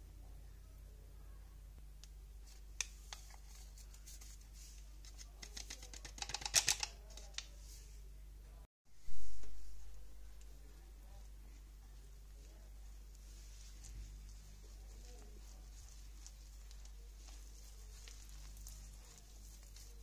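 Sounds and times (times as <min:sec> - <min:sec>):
paper sachet crinkling: 0:13.7 - 0:20.0.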